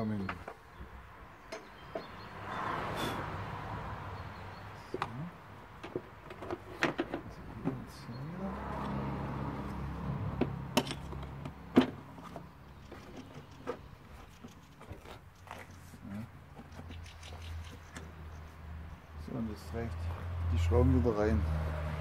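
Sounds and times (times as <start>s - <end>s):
vehicle engine humming: 0.0s - 22.0s.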